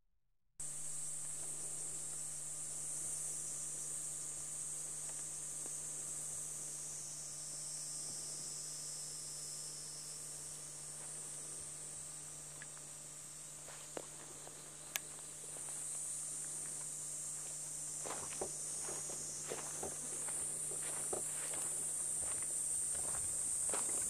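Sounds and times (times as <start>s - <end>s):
insects chirping: 0.6s - 24.0s
light footsteps: 13.6s - 24.0s.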